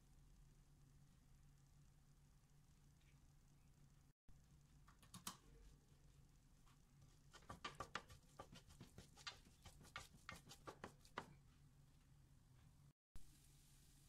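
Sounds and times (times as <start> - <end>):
spatula scraping and tapping pot: 7.2 - 11.4.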